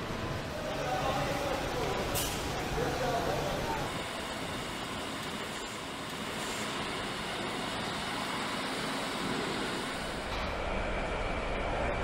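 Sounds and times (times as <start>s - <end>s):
factory hall hum: 0.0s - 12.0s.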